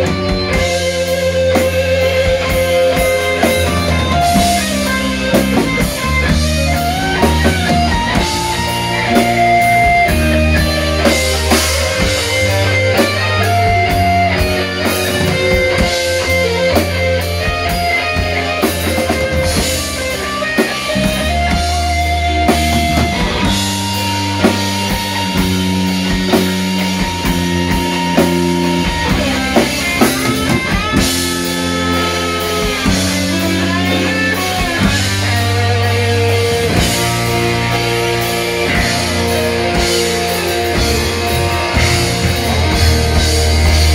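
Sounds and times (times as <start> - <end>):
drum kit hits: 0.0 - 43.9
electric bass line: 0.0 - 43.9
electric guitar lead notes: 0.0 - 43.9.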